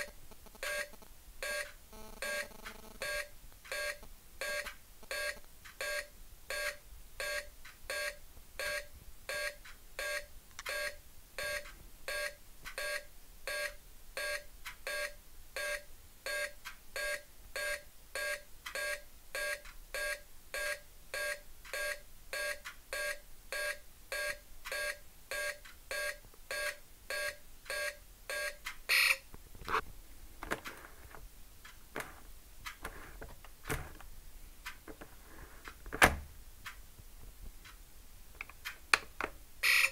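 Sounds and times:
electronic countdown beeps: 0.0 - 29.2.

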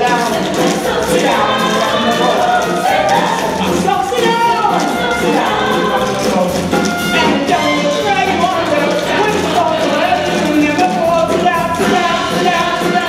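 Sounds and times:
chorus singing: 0.0 - 13.0
instrumental accompaniment: 0.0 - 13.0.

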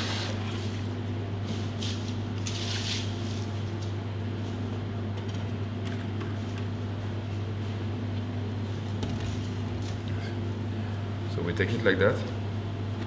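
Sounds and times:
kitchen equipment humming: 0.0 - 13.0.

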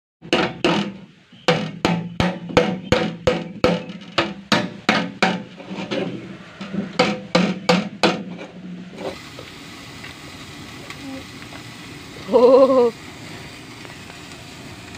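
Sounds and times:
blade striking metal drum lid: 0.2 - 8.8.

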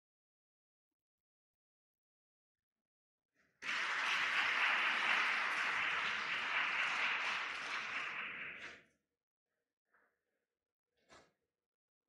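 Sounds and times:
audience applauding: 3.6 - 8.8.

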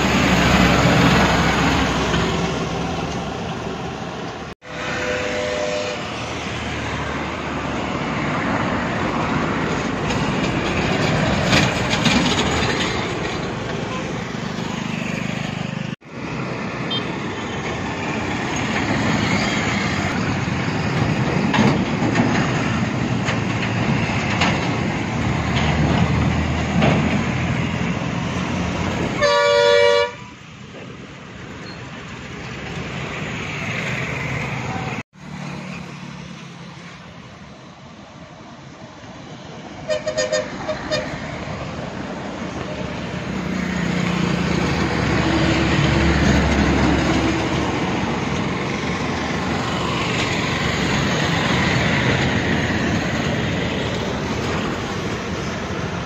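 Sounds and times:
heavy trucks passing on highway: 0.0 - 56.0
vehicle horn long blast: 4.6 - 6.1, 29.2 - 30.3, 39.9 - 41.1.

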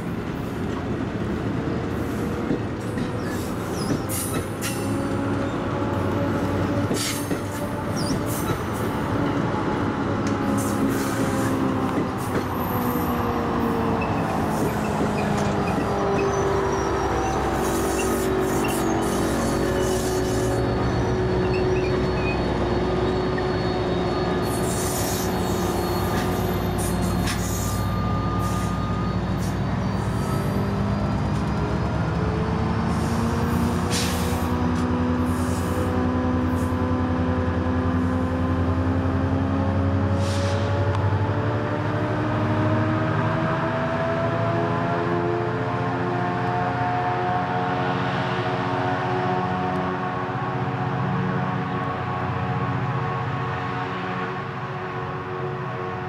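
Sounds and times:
rail rumble: 0.0 - 42.6
diesel locomotive engine drone: 0.0 - 56.0.

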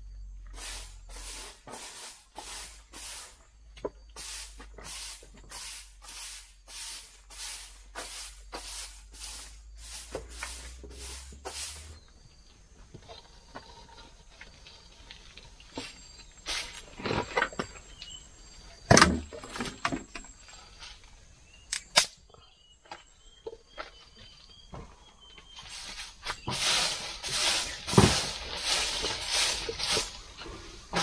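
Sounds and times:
stick broom sweeping dirt: 0.4 - 12.1, 15.8 - 17.3, 25.5 - 31.0.

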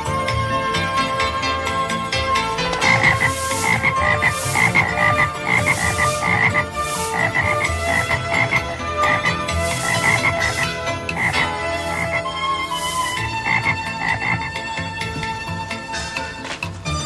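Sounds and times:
frogs croaking: 2.3 - 16.0.

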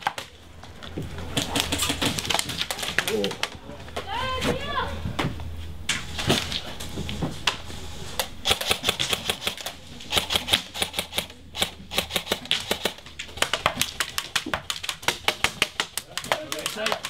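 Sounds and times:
airsoft guns firing: 1.3 - 3.3, 8.4 - 17.0.

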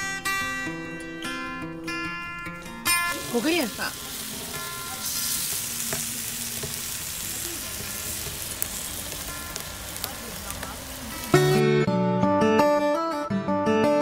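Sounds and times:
acoustic guitar music: 0.0 - 14.0
meat sizzling on a grill: 1.4 - 11.6.

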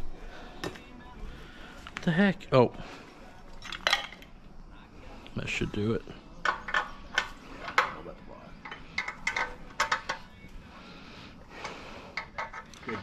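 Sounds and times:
metal wrenches clinking: 8.6 - 10.3, 12.2 - 13.0.

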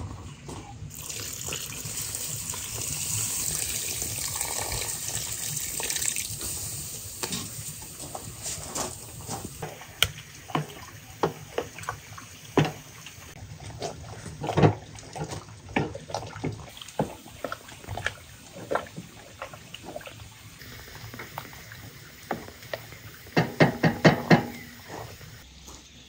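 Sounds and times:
syrup boiling with bubbling pops: 0.9 - 25.5.

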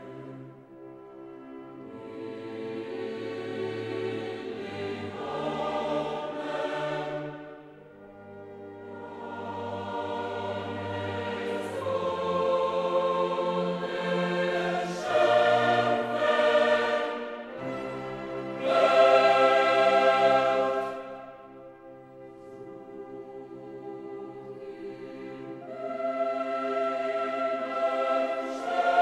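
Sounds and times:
orchestra: 0.0 - 29.0
choir singing held chords: 1.5 - 29.0.

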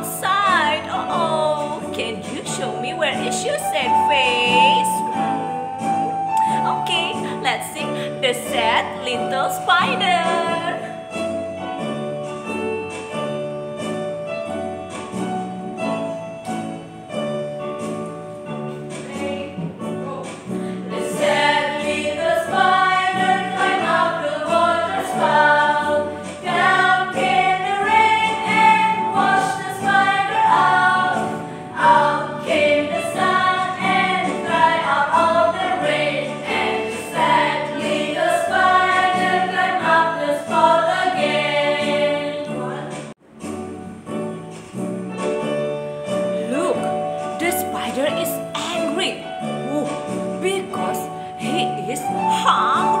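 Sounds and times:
children's song on electronic keyboard: 0.0 - 53.0
women singing in unison: 20.9 - 43.0.

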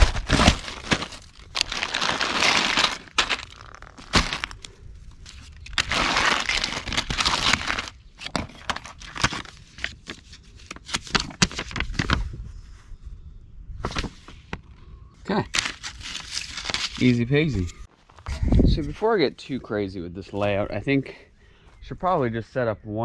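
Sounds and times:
plastic and paper crinkling: 0.0 - 12.2, 15.5 - 18.2.

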